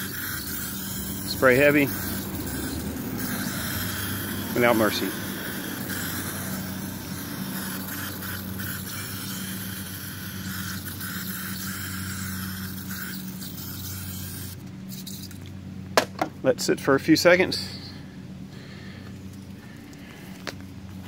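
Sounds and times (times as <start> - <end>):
aerosol spray hissing: 0.0 - 14.5
steady low hum: 0.0 - 21.0.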